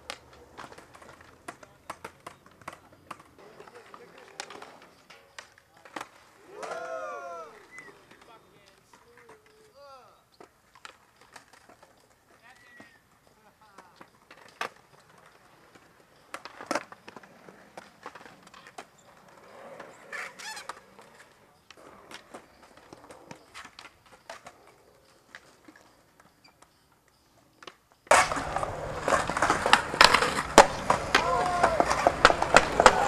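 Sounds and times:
skateboards clacking on concrete: 0:00.0 - 0:33.0
person shouting: 0:06.5 - 0:07.7, 0:31.2 - 0:32.0.

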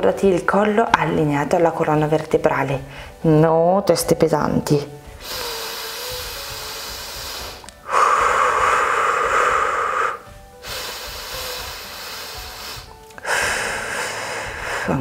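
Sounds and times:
faint background music: 0:00.0 - 0:15.0
woman breathing audibly: 0:02.9 - 0:03.2, 0:05.1 - 0:15.0.

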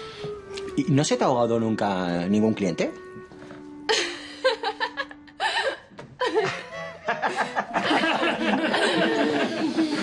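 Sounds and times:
background music: 0:00.0 - 0:10.0
woman laughing: 0:03.9 - 0:10.0.

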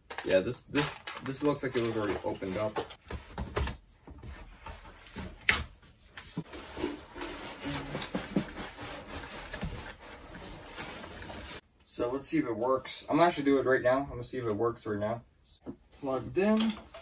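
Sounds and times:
cardboard and foam rustling: 0:00.2 - 0:11.6.

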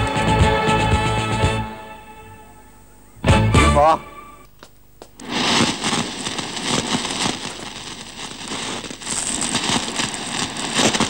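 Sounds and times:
dense crackling pops: 0:04.4 - 0:11.0.

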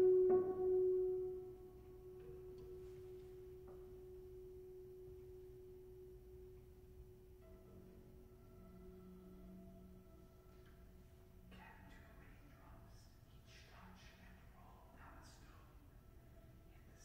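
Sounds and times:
piano note ringing: 0:00.0 - 0:12.0.

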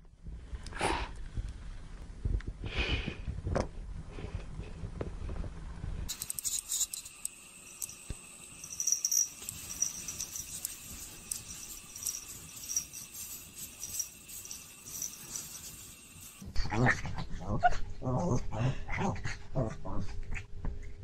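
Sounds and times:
small bell jingling: 0:06.1 - 0:16.4
thin high ringing: 0:06.1 - 0:16.4.

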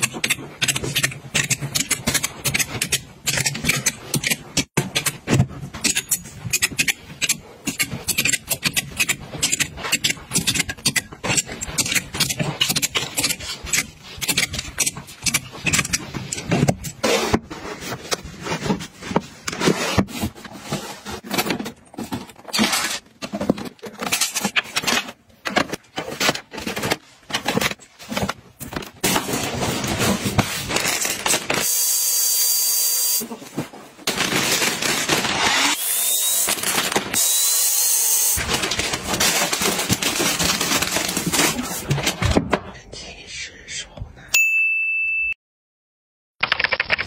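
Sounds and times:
plastic bins clacking and knocking: 0:00.0 - 0:31.6, 0:38.4 - 0:42.8.

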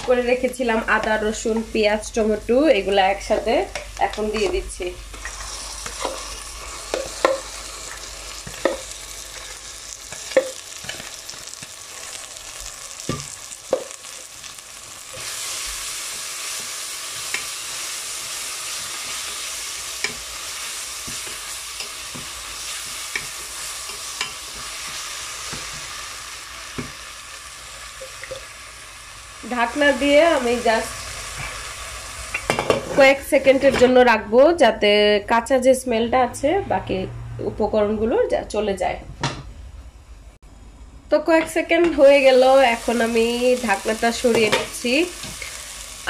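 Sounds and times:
paste sizzling in hot oil: 0:04.0 - 0:33.2, 0:42.2 - 0:46.0.

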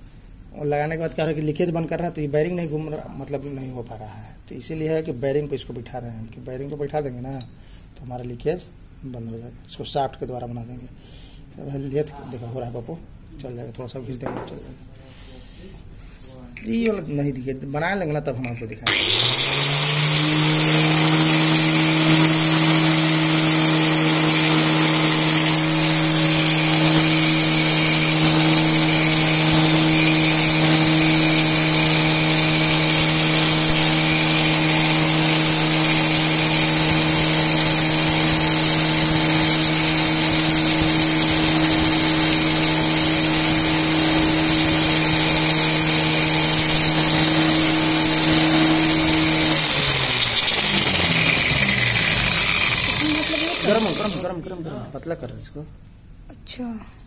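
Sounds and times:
angle grinder motor: 0:18.8 - 0:54.3
metal rod grinding hiss: 0:23.9 - 0:54.3.

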